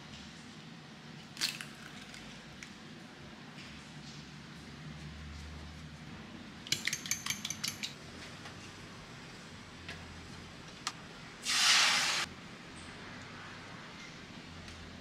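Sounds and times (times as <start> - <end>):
brief loud hiss: 11.4 - 12.3.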